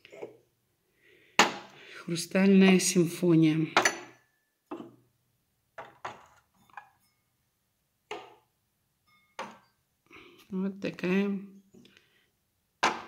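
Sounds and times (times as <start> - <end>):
glassware clinking: 5.8 - 7.3, 8.1 - 9.8.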